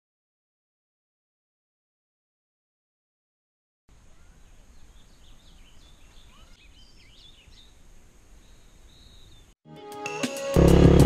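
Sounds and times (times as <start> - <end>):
songbirds chirping: 3.9 - 9.6.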